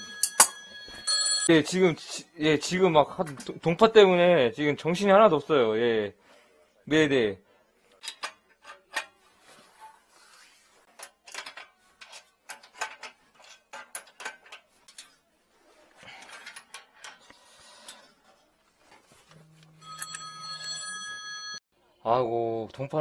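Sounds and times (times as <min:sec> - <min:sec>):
wrench clinking on metal: 0:00.0 - 0:01.1.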